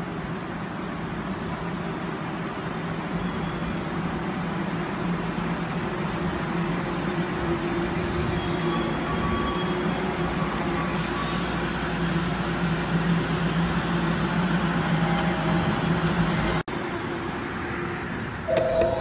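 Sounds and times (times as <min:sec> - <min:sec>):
monorail train stopping: 0:00.0 - 0:19.0
high whine: 0:18.5 - 0:19.0.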